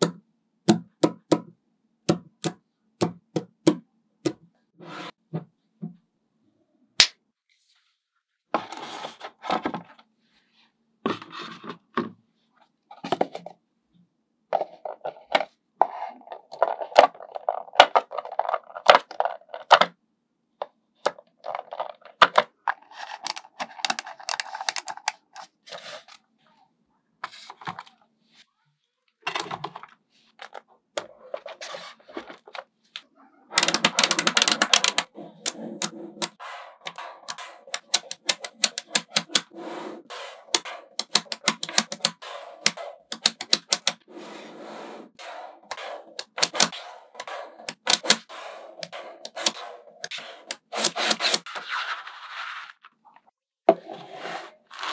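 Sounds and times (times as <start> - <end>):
magnetic balls clicking together: 33.6 - 39.5, 40.4 - 44.0, 45.7 - 51.4.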